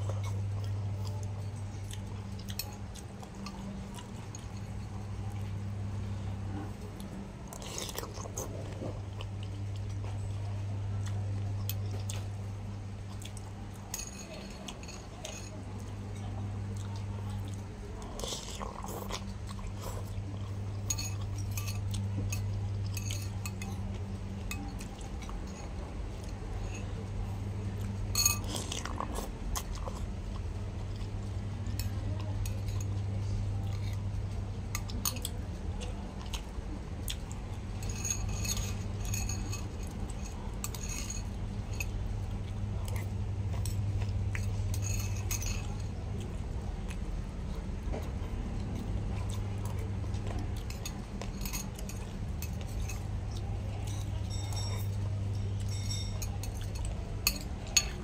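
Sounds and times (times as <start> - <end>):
steady low hum: 0.0 - 58.0
cutlery clinking on ceramic bowl: 53.8 - 58.0.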